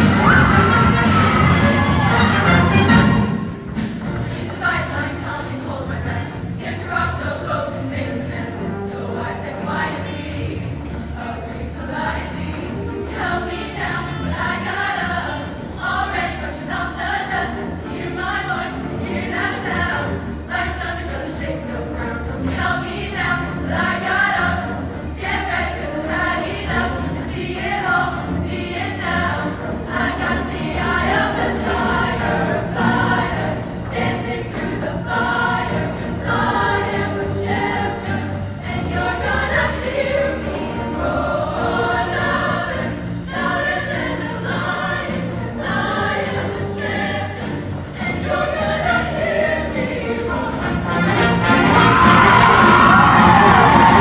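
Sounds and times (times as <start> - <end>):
live band playing: 0.0 - 4.4, 50.4 - 54.0
steady drum beat: 0.0 - 4.9
choir singing in harmony: 0.0 - 54.0.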